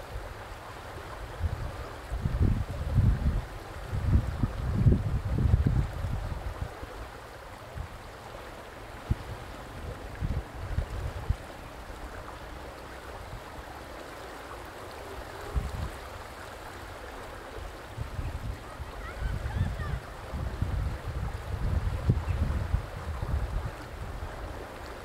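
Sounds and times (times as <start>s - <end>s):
river water flowing and lapping: 0.0s - 25.0s
wind buffeting microphone: 1.2s - 6.9s, 8.9s - 12.4s, 15.2s - 16.9s, 17.5s - 25.0s.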